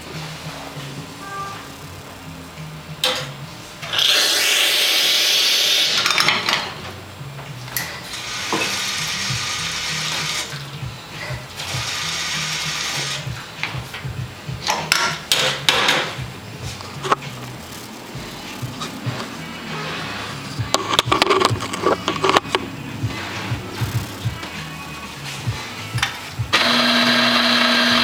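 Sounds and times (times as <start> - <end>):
background music: 0.0 - 28.0
espresso machine hissing and grinding: 3.9 - 6.0, 8.0 - 10.6, 11.6 - 13.3, 17.4 - 28.0
metal clicks and clunks: 13.6 - 19.4, 20.6 - 24.6.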